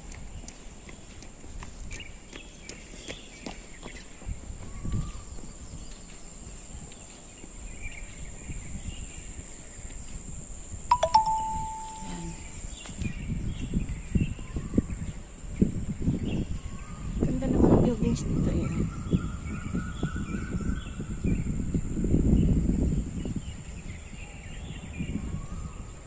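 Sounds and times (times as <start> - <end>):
wind rumbling on microphone: 3.4 - 10.9, 12.4 - 26.0
short ringing ding: 10.9 - 12.5.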